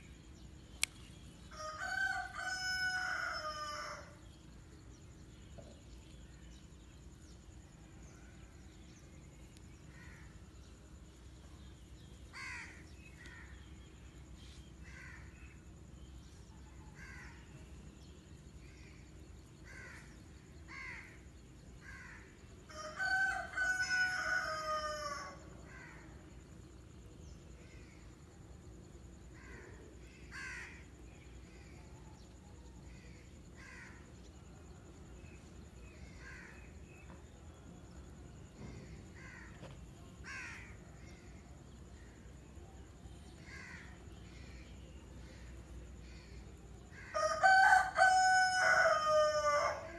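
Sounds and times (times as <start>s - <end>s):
rooster crowing: 1.5s - 4.2s, 22.7s - 25.6s, 47.1s - 49.9s.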